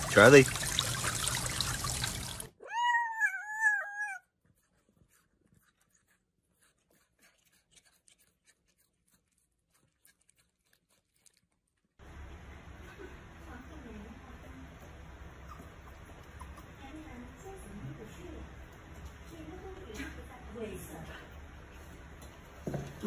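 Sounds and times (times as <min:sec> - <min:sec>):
cat meowing: 0:02.6 - 0:04.2.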